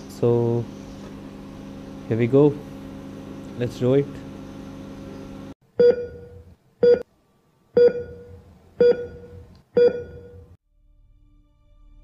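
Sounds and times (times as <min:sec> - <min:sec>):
short electronic beeps: 0:05.8 - 0:07.0, 0:07.8 - 0:10.5.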